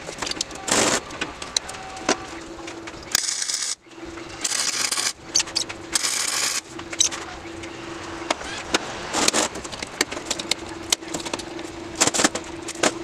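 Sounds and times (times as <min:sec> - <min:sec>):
welding arc crackle: 0:00.0 - 0:03.8, 0:04.4 - 0:07.3
welder low hum: 0:00.0 - 0:12.2
metal parts clicking: 0:04.4 - 0:07.2.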